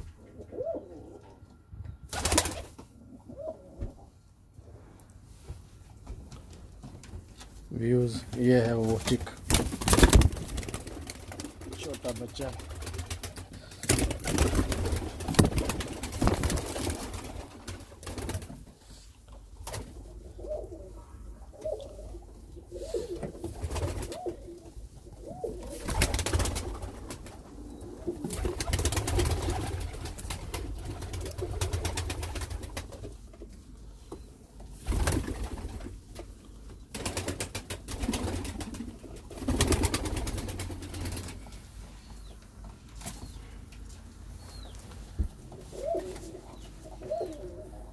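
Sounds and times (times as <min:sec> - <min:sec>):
pigeons cooing: 0:00.0 - 0:01.5, 0:03.0 - 0:04.2, 0:20.0 - 0:32.2, 0:45.5 - 0:47.9.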